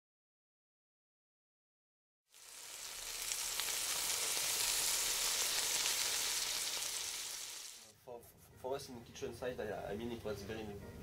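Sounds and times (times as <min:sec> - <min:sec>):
food sizzling in a pan: 0:02.3 - 0:07.9.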